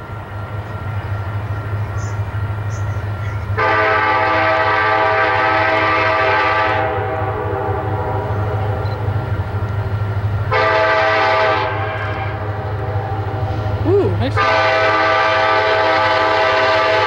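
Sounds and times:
locomotive air horn: 3.6 - 8.4, 10.5 - 13.7, 14.3 - 17.0.

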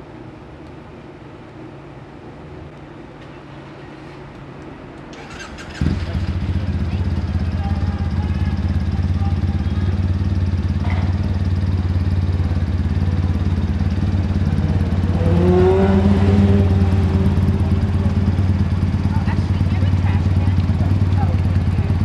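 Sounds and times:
motorcycle engine idling: 5.2 - 22.0.

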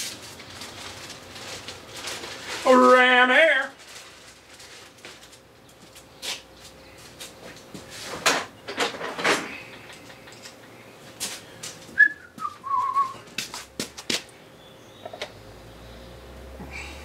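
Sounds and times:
rustling handling noises: 0.0 - 14.4.

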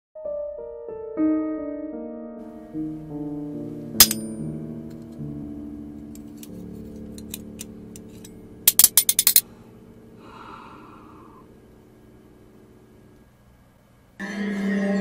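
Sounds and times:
low background music drone: 2.4 - 13.2
breathy gasp-like hiss: 9.6 - 11.6.

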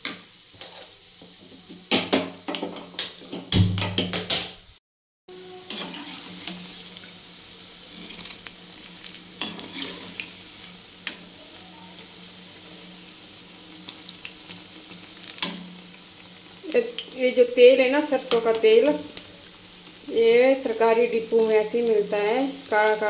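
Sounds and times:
deep-frying sizzle: 0.0 - 4.5, 5.3 - 23.0
spoon scraping and knocking pan: 0.0 - 4.6, 5.7 - 6.6.

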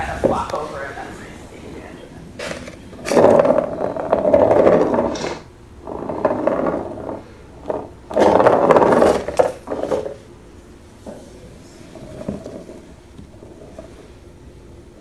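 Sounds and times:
plastic ball rattling around track: 2.4 - 10.2.

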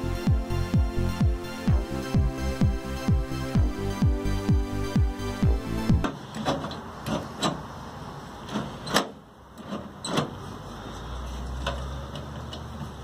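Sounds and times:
low steady hum: 0.0 - 6.3.

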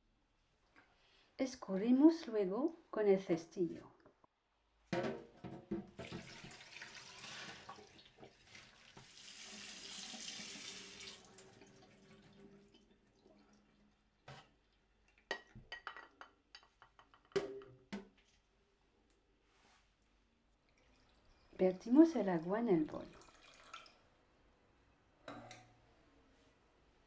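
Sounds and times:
basket knocking: 4.9 - 6.0
tap water running into sink: 5.8 - 12.9
water dripping: 6.0 - 15.6, 20.5 - 21.7, 22.9 - 24.0.

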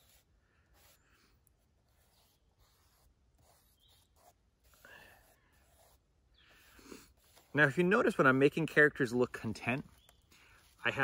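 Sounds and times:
pencil scratching on paper: 0.0 - 8.2, 10.6 - 11.0.

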